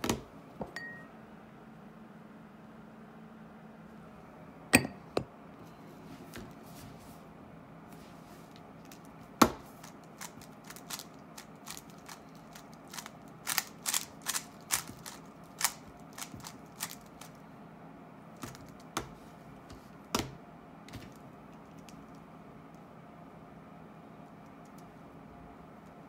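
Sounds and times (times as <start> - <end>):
puzzle cube clicking and clacking: 9.8 - 17.4.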